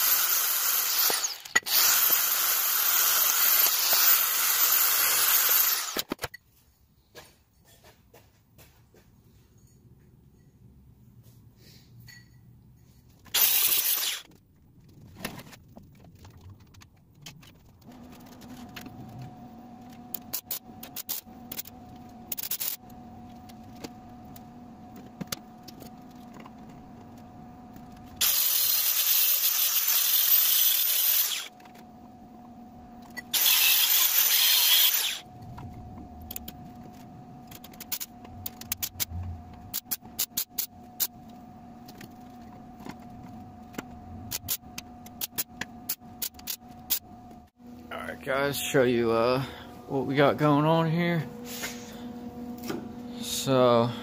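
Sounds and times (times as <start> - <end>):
steady hum: 31.3 - 54.0.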